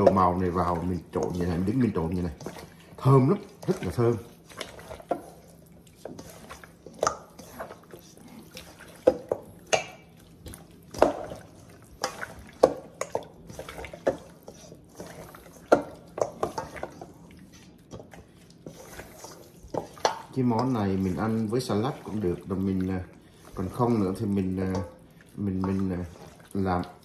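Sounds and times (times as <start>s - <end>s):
ribs knocking against metal bowl: 0.0s - 2.7s, 10.8s - 17.1s
wet squelches of mixing meat: 0.0s - 27.0s.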